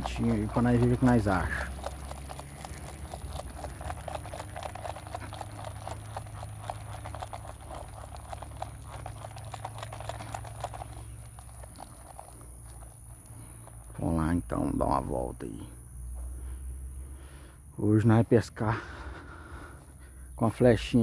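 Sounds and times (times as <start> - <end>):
small irregular clicks: 0.0 - 13.9
footsteps on ground: 0.0 - 14.0.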